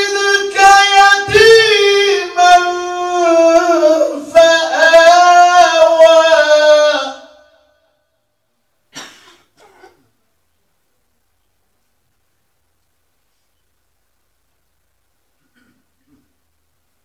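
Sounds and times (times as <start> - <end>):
man reciting melodically: 0.0 - 8.0.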